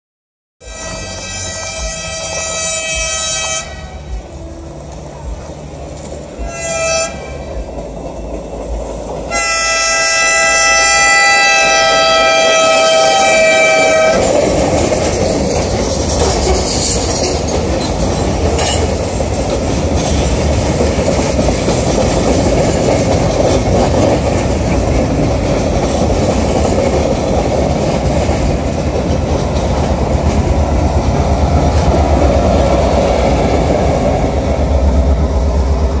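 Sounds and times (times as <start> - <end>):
train horn: 0.6 - 5.3, 6.3 - 7.7, 9.3 - 14.4
train wheels rumbling and clacking: 0.6 - 36.0.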